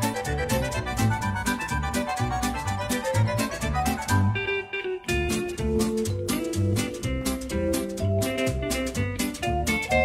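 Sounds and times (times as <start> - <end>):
guitar and fiddle music: 0.0 - 10.0
repeating bass beat: 5.1 - 10.0.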